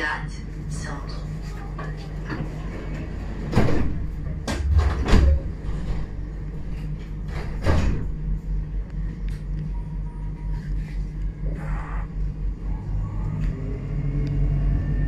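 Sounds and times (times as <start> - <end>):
tram interior hum: 0.0 - 15.0
low even pulsing of moving tram: 9.6 - 15.0.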